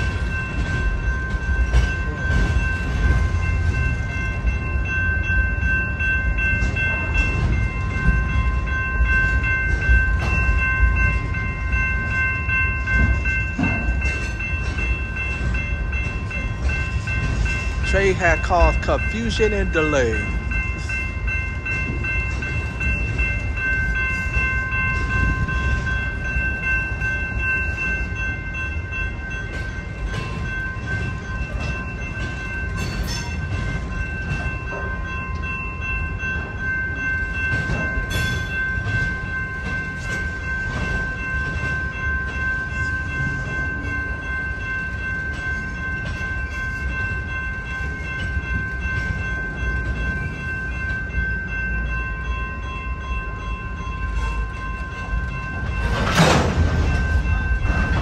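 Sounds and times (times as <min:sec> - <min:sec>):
freight train wheels rumbling: 0:00.0 - 0:58.0.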